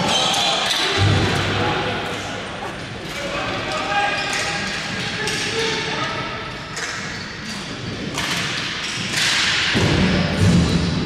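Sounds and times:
hockey sticks and ball knocking: 0:08.0 - 0:10.8.

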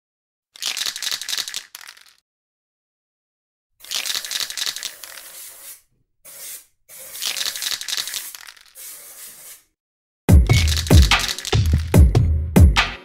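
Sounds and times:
spray-paint can hissing: 0:03.8 - 0:09.7, 0:10.7 - 0:11.8.

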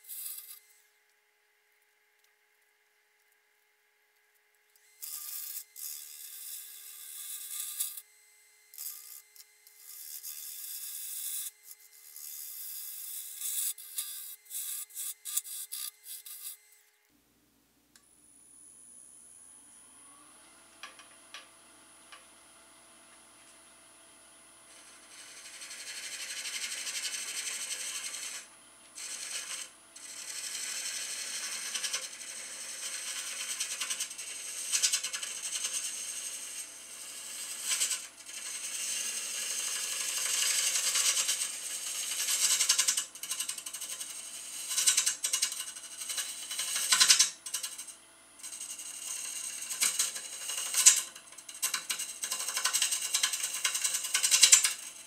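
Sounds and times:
lathe tool scraping wood: 0:00.0 - 0:00.8, 0:04.8 - 0:08.1, 0:08.8 - 0:16.8, 0:24.7 - 0:55.0.

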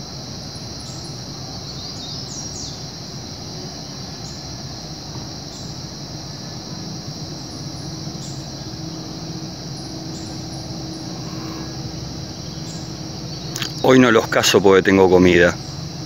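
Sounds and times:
insects chorus: 0:00.0 - 0:16.0.

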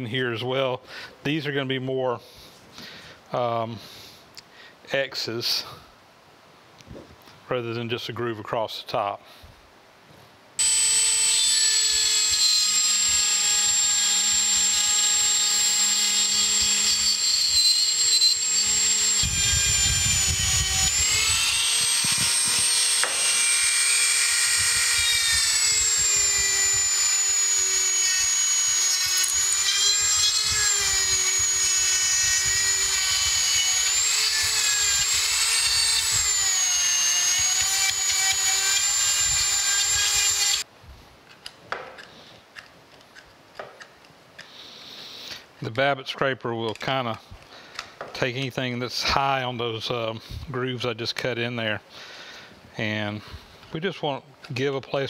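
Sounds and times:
rotary tool whining: 0:10.6 - 0:40.7.

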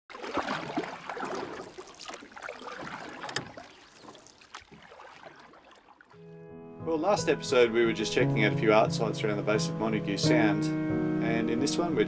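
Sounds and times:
water splashing and gurgling: 0:00.1 - 0:06.2.

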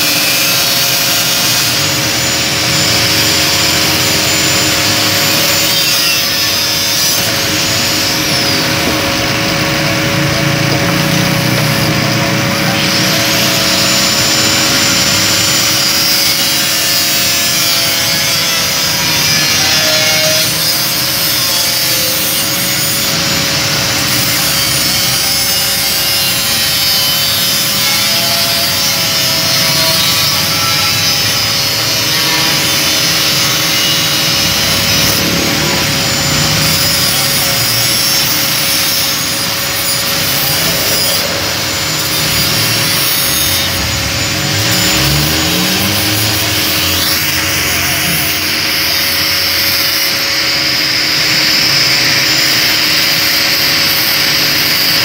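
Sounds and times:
angle grinder motor whine: 0:00.0 - 0:55.0
disc cutting through steel: 0:00.0 - 0:55.0.

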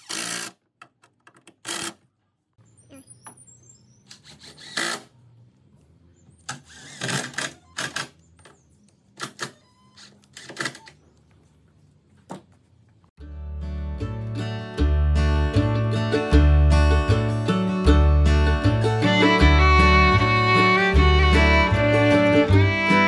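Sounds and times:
impact driver driving screws into wood: 0:00.0 - 0:00.6, 0:01.5 - 0:02.0, 0:04.1 - 0:05.1, 0:06.5 - 0:08.2.

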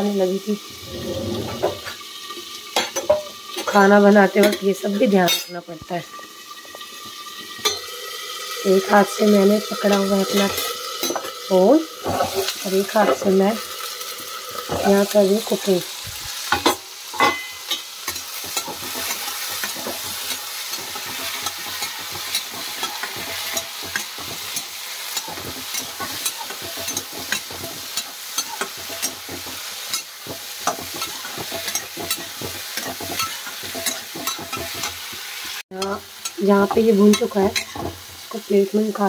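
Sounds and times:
peas sizzling in oil: 0:00.0 - 0:39.0
metal spatula scraping pan: 0:00.8 - 0:02.0, 0:12.0 - 0:13.4, 0:16.5 - 0:35.2.

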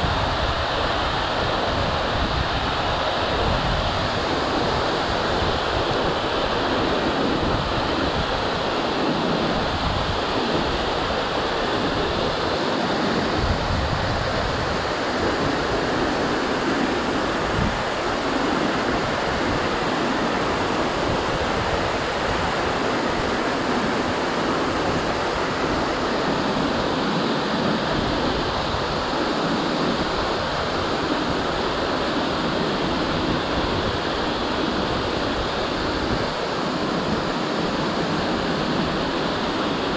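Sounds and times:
waterfall rushing: 0:00.0 - 0:39.9.

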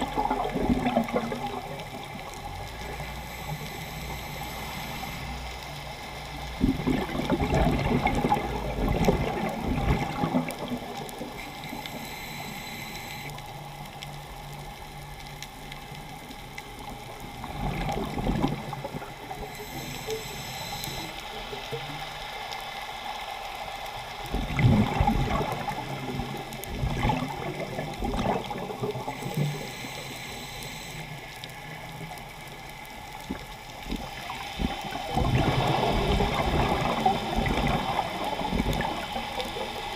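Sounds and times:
muffled underwater background: 0:00.0 - 0:22.3, 0:24.2 - 0:39.9
underwater bubbles gurgling: 0:00.0 - 0:39.9.

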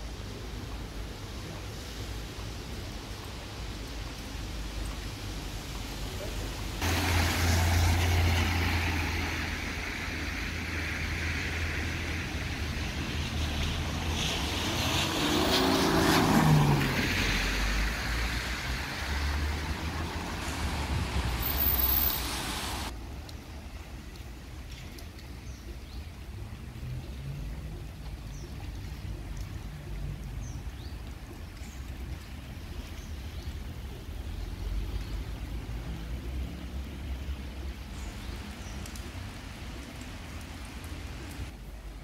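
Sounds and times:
tyres hissing on wet asphalt: 0:00.1 - 0:23.0
vehicle passing close: 0:06.8 - 0:09.7, 0:13.3 - 0:22.9.

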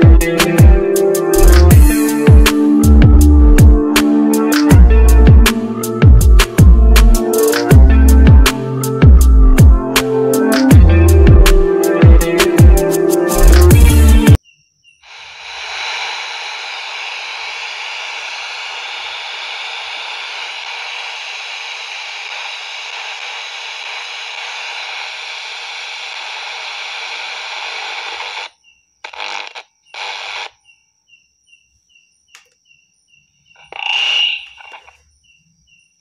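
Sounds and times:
radio static hiss: 0:15.0 - 0:30.6, 0:33.6 - 0:35.0
radio squeal: 0:15.1 - 0:30.6, 0:33.6 - 0:35.0.

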